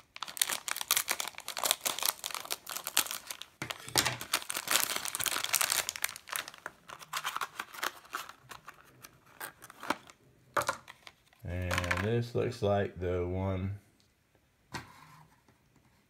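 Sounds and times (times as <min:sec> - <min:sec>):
foil wrapper crinkling: 0:00.0 - 0:10.1
plastic bag crinkling: 0:00.0 - 0:10.2.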